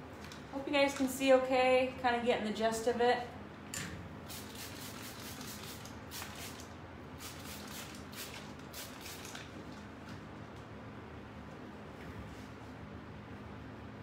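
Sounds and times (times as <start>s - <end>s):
spray bottle spritzing water: 4.3s - 9.5s.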